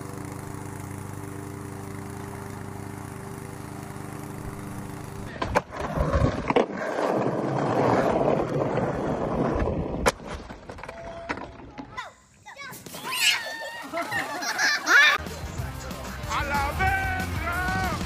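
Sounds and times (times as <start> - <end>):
lawn mower engine running: 0.0 - 5.7
skateboard rolling on paving: 0.0 - 11.9.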